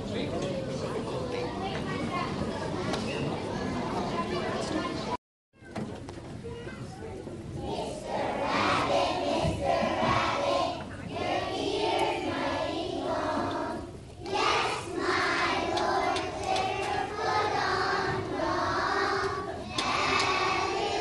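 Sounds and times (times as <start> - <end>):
children singing together: 7.6 - 21.0.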